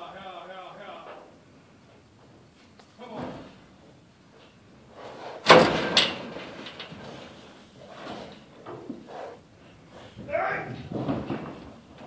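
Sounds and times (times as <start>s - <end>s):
metal gates banging: 5.4s - 7.1s
metal rattling: 5.4s - 7.5s.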